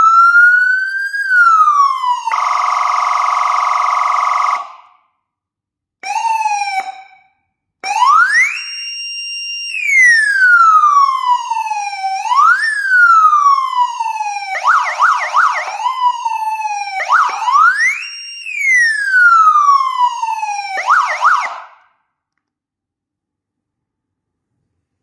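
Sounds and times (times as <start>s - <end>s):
electronic siren wailing and yelping: 9.7s - 21.6s.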